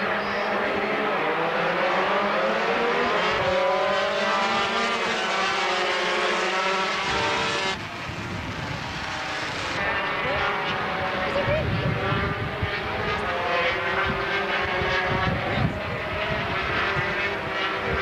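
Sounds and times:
racing motorcycles accelerating: 0.0 - 18.0.

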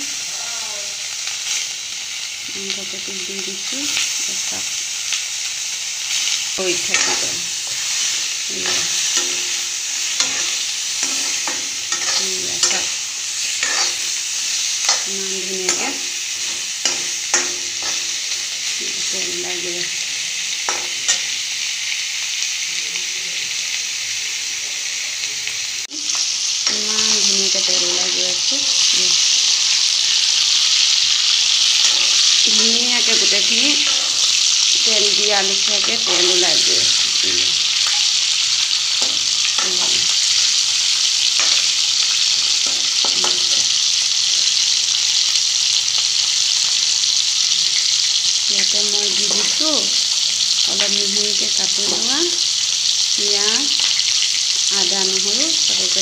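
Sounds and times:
pork sizzling in a wok: 0.0 - 56.0
spatula scraping and knocking pan: 6.8 - 18.3, 41.3 - 43.7.

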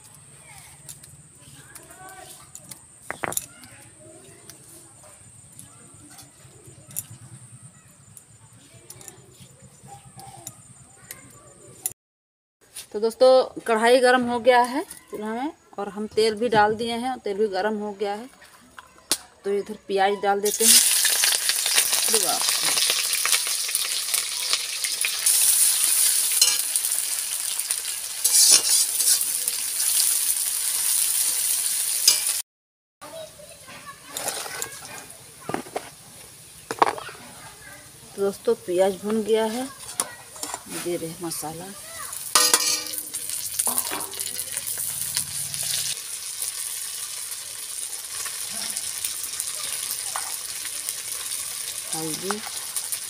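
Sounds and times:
onions sizzling in oil: 20.3 - 32.4, 33.3 - 53.0
metal spatula scraping: 25.3 - 26.8, 28.2 - 29.5, 32.0 - 32.4, 39.4 - 41.5, 42.1 - 46.0.

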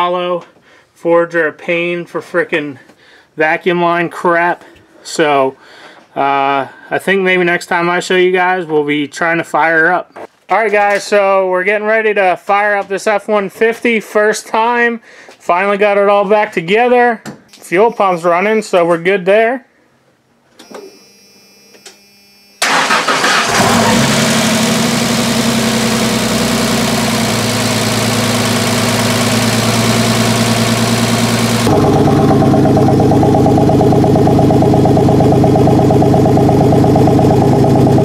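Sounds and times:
engine cranking and starting: 22.6 - 38.0
exhaust note: 22.6 - 38.0
engine idling with lifter ticking: 23.6 - 38.0.

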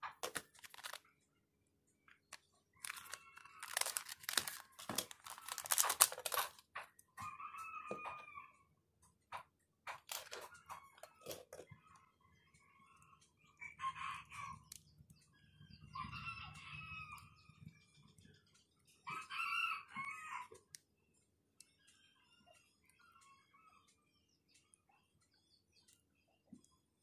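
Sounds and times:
small phone parts clicking: 0.0 - 1.0, 2.1 - 6.6, 9.9 - 11.6
rooster crowing: 7.2 - 8.6, 19.1 - 20.5.

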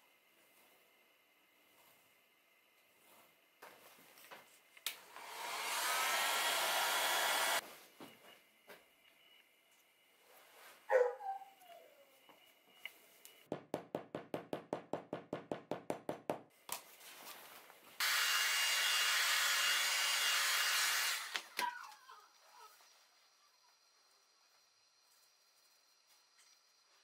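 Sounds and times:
mallet tapping on leather: 13.5 - 16.5.

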